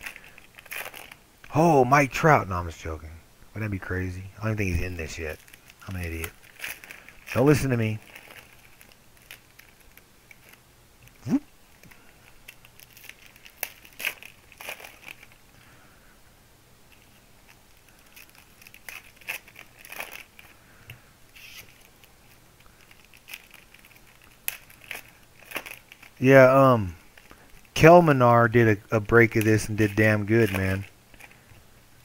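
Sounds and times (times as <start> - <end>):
cards being shuffled: 0.0 - 1.2, 4.7 - 11.2, 11.8 - 15.4, 16.9 - 26.2, 28.6 - 31.6
foil wrapper crinkling: 0.0 - 1.6, 4.5 - 10.6, 11.7 - 16.0, 16.9 - 31.6.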